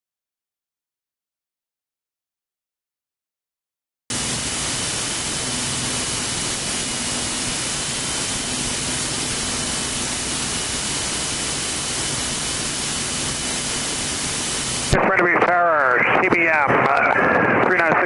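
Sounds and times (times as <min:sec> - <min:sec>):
radio feed hiss: 0:04.1 - 0:18.0
thin high whine: 0:04.1 - 0:18.0.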